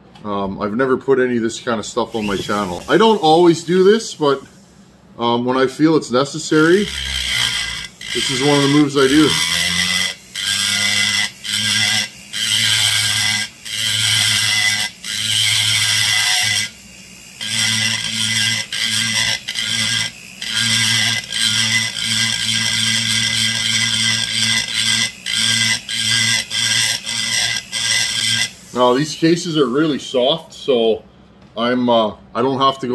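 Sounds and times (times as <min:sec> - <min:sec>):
rotary tool burr cutting metal: 0:02.1 - 0:04.5, 0:06.4 - 0:30.0.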